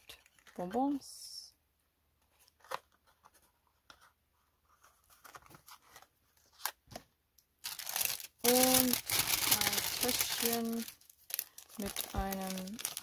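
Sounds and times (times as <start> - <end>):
paper bag crinkling: 7.6 - 13.0.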